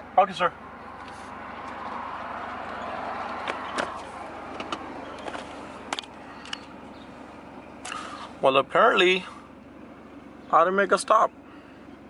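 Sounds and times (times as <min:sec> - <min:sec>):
vehicle passing by: 0:00.7 - 0:08.5.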